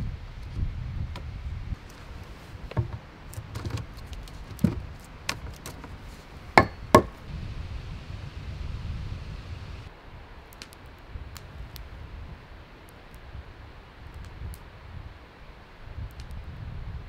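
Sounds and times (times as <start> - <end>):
axe knocking wooden log: 6.6 - 7.2.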